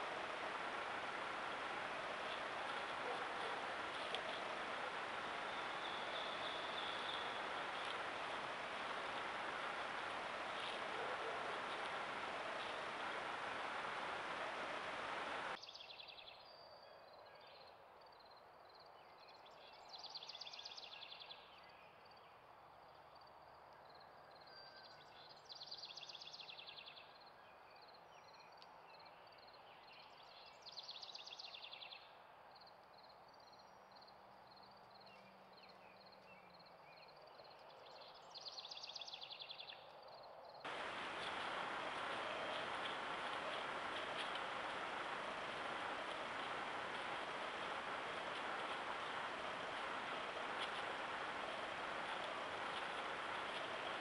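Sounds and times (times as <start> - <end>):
microphone hiss: 0.0 - 15.8, 40.7 - 54.0.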